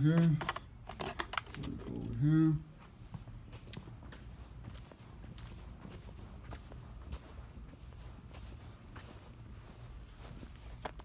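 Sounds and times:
footsteps on grass: 2.6 - 11.0.

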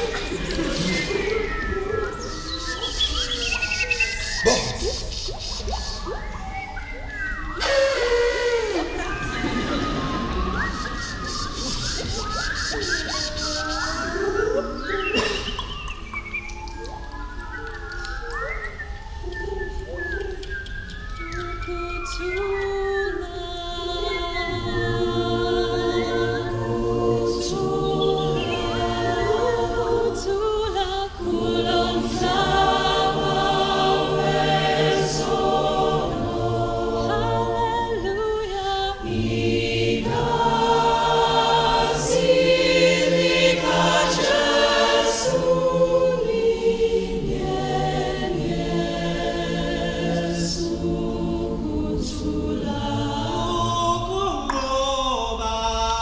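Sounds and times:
choir singing a cappella: 0.0 - 6.0, 7.6 - 15.4, 21.8 - 56.0.

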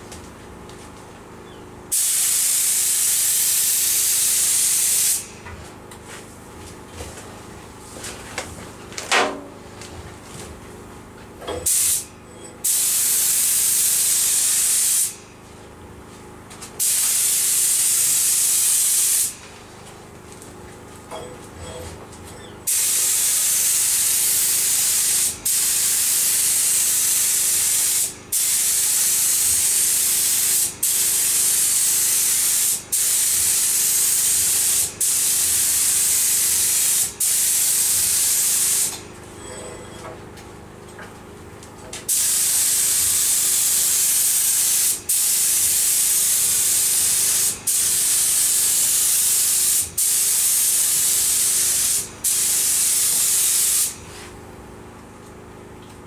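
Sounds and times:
spray gun hissing: 1.9 - 5.3, 11.6 - 15.2, 16.8 - 19.3, 22.7 - 38.9, 42.1 - 54.0.

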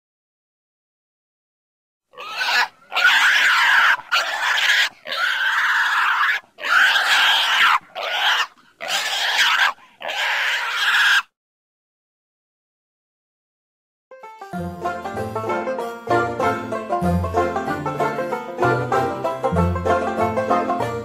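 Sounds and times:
pig squealing: 2.1 - 11.4.

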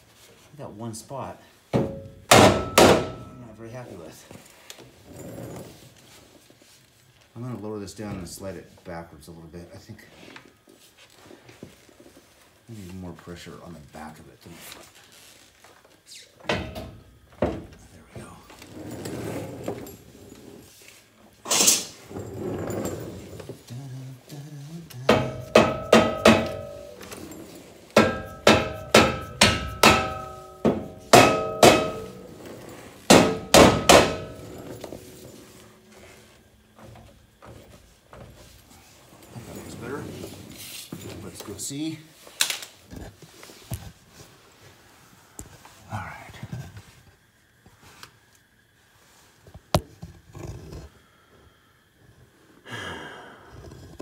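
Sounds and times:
sledge hammer striking steel: 1.8 - 3.4, 25.1 - 27.1, 28.0 - 32.3, 33.1 - 34.8.

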